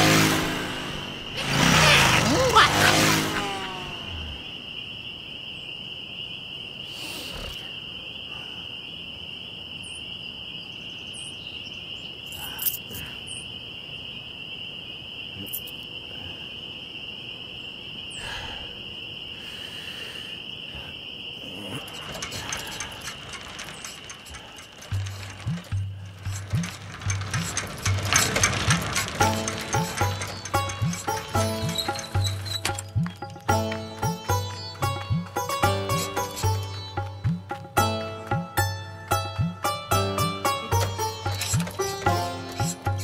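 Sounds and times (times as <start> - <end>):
crickets chirring: 0.0 - 43.0
short rustles and clicks: 21.8 - 36.7, 40.7 - 43.0
quick run of ticks: 21.8 - 37.7.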